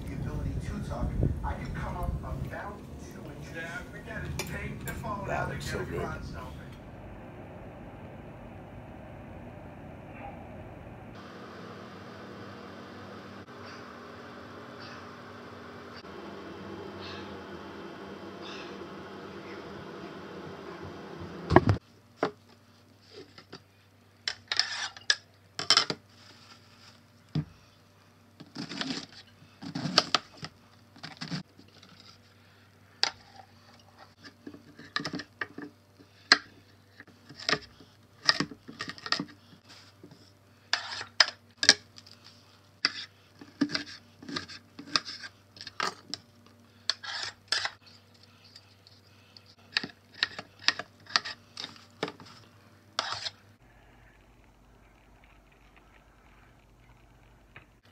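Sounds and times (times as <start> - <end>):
low steady hum: 0.0 - 57.9
peeler scraping potato skin: 46.9 - 48.0.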